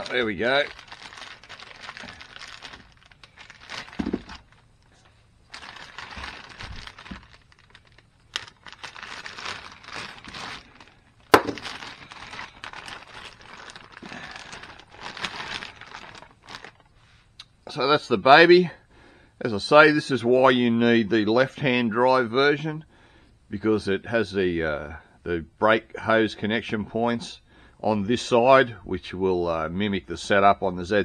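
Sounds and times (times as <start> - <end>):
plastic bag crinkling and rustling: 0.0 - 17.0.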